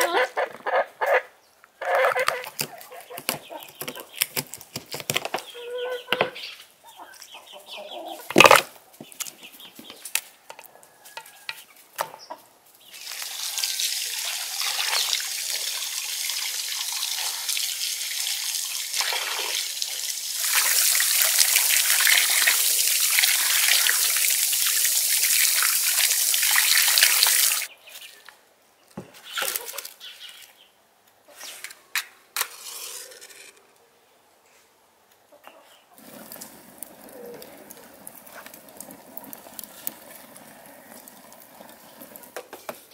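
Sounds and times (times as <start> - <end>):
chickens clucking: 0.0 - 4.2, 5.4 - 8.5, 10.7 - 12.6, 35.3 - 38.5.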